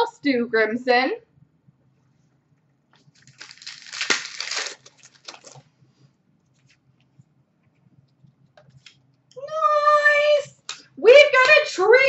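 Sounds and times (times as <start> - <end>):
card pack wrapper crinkling and tearing: 3.1 - 5.6.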